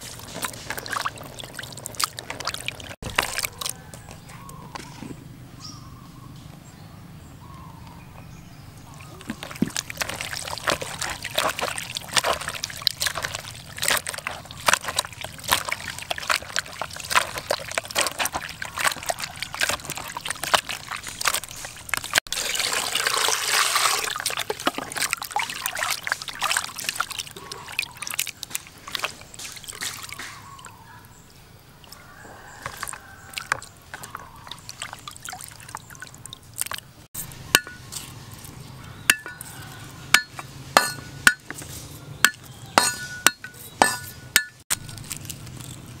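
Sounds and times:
water splashing: 0:00.0 - 0:03.9, 0:08.9 - 0:30.8, 0:31.8 - 0:37.9
wet squelching and sloshing: 0:00.0 - 0:04.9, 0:08.9 - 0:31.0, 0:31.8 - 0:45.8.

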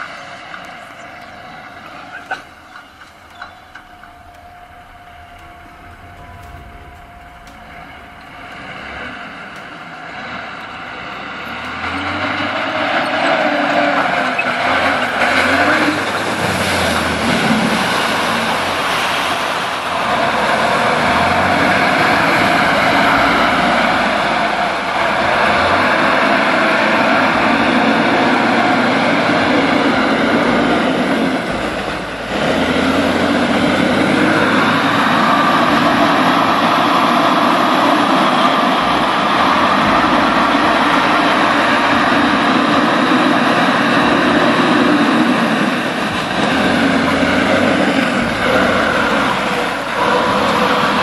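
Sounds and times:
truck diesel engine under load: 0:00.0 - 0:51.0.

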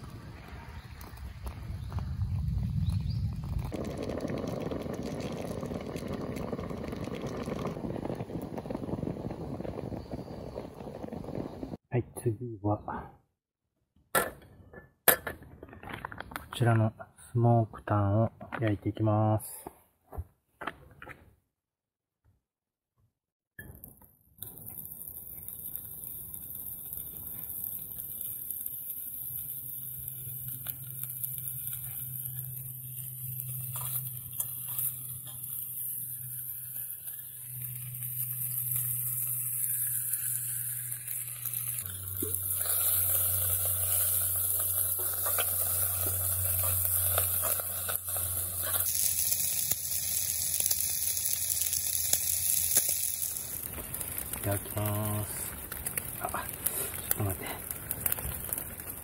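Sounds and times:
meat sizzling in a skillet: 0:24.5 - 0:57.3.

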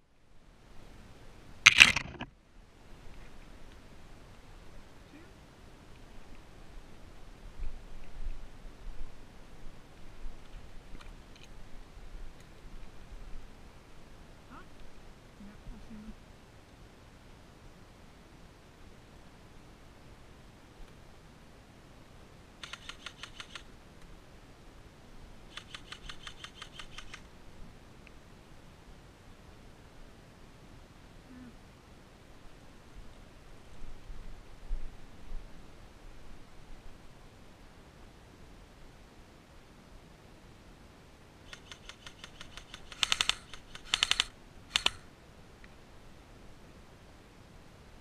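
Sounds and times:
airsoft rifle firing bursts: 0:41.5 - 0:45.0.

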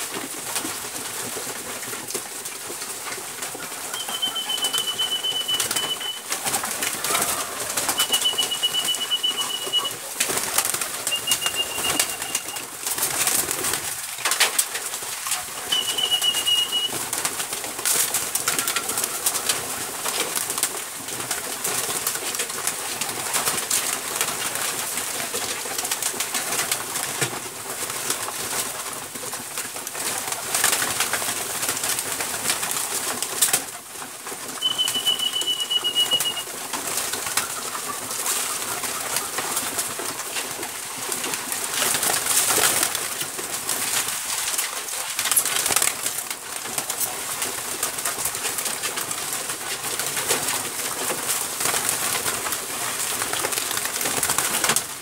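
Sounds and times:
pigeons flapping wings: 0:00.0 - 0:55.0
pigeons cooing: 0:03.4 - 0:13.8, 0:15.6 - 0:17.1, 0:34.6 - 0:39.6
high whistle: 0:03.9 - 0:06.2, 0:07.9 - 0:09.9, 0:11.1 - 0:12.6, 0:15.7 - 0:17.0, 0:34.6 - 0:36.4.

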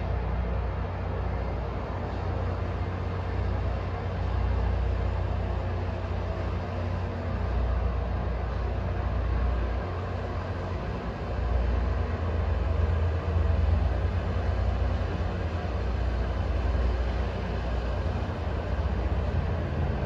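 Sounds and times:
train rumbling along track: 0:00.0 - 0:20.0.

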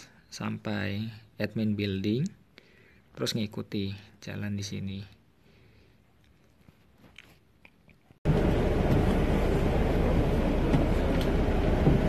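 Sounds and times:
bus interior engine rumble: 0:08.3 - 0:12.0.

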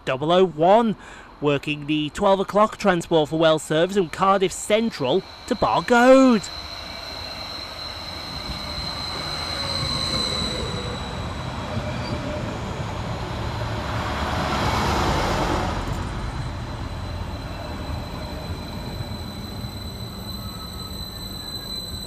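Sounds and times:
train rumbling past: 0:02.6 - 0:22.0
high steady squeal: 0:02.9 - 0:14.2, 0:15.8 - 0:22.0.

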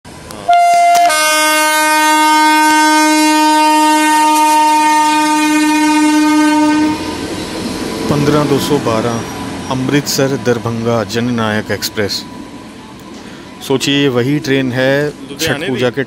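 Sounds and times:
rumble of passing train: 0:00.1 - 0:16.0
train air horn: 0:00.5 - 0:07.2.

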